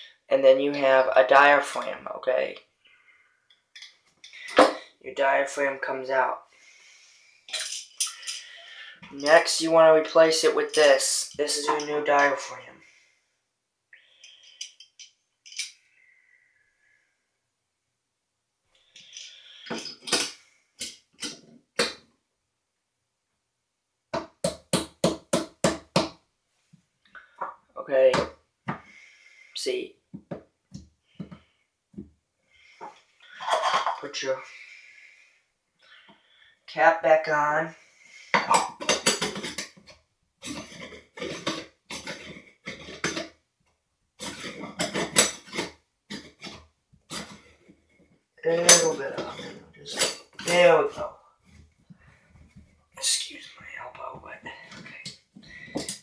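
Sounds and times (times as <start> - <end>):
metallic scrapes and clinks: 7.5 - 9.4, 14.2 - 15.8.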